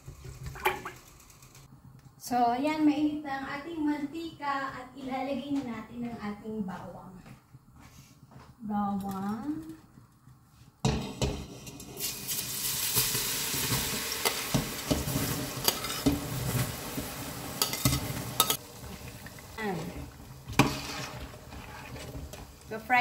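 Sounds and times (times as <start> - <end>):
garlic sizzling in hot oil: 11.6 - 23.0
utensil stirring and knocking pot: 14.2 - 16.3, 17.6 - 18.6, 19.3 - 22.8.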